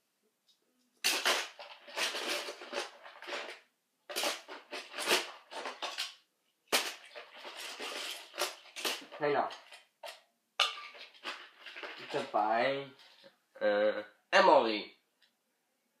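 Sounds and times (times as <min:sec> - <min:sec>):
toy trains clattering: 0:01.1 - 0:06.2, 0:06.8 - 0:13.2.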